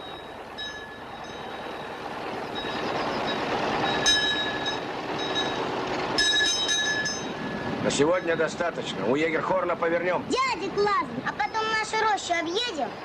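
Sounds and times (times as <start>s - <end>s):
bright metallic bell ringing: 0.0s - 8.6s
fire engine driving past: 0.0s - 11.2s.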